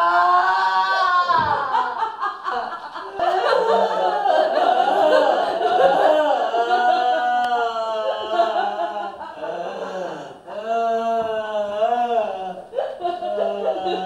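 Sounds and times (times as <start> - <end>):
man laughing theatrically: 1.3 - 9.9, 12.4 - 14.0.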